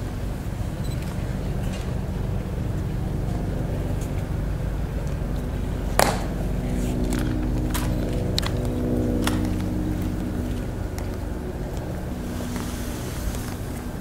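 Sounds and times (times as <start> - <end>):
steady low rumble: 0.0 - 14.0
steady multi-tone hum: 0.0 - 14.0
dress shoes clicking on stone: 6.0 - 11.9.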